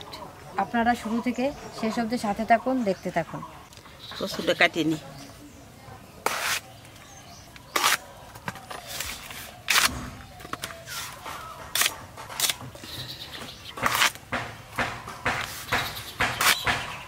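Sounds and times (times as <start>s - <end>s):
blade slicing stalks: 8.9s - 10.1s.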